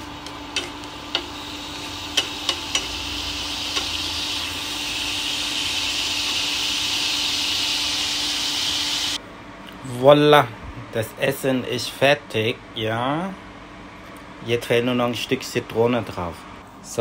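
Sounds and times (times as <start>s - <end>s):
tomatoes sizzling in frying pan: 0.1s - 9.2s.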